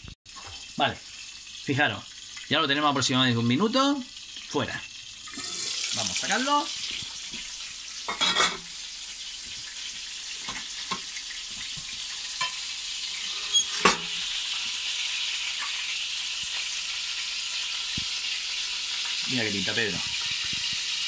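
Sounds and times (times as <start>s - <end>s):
food sizzling in hot oil: 0.0s - 21.0s
pan lid clanking: 13.6s - 14.2s.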